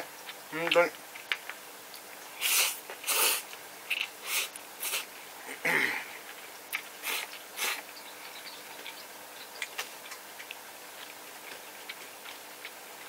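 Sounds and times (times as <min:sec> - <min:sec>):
person slurping noodles: 0:02.4 - 0:03.4, 0:04.2 - 0:05.1
wet chewing smacks: 0:06.2 - 0:13.0.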